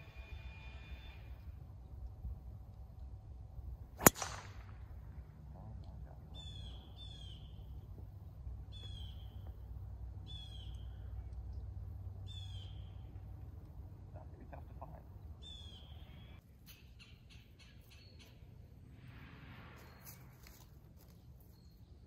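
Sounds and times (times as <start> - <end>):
golf club striking ball: 4.0 - 4.9
bird calling: 6.3 - 11.4, 12.2 - 13.3, 15.0 - 18.5.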